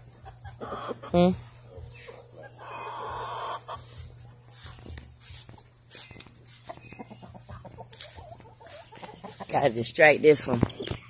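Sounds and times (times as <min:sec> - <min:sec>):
chickens clucking: 0:00.0 - 0:11.0
harsh chicken call: 0:02.4 - 0:03.9.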